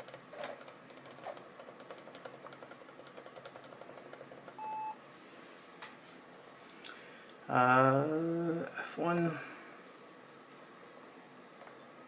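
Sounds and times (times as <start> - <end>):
short laptop beep: 4.6 - 5.0.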